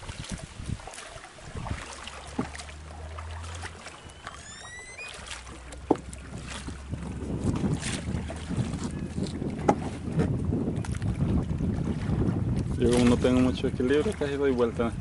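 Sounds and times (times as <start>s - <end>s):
oar splashing in water: 0.0s - 15.0s
wind: 0.0s - 15.0s
oar knocking: 2.2s - 2.7s, 3.5s - 11.4s
short rising squeak: 3.9s - 5.5s.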